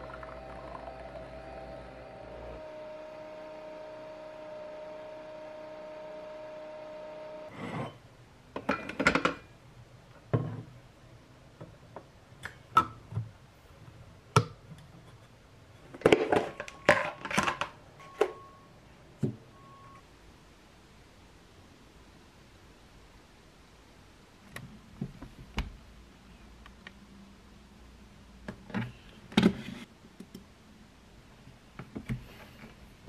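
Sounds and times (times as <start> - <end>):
coffee machine humming: 0.0 - 7.6.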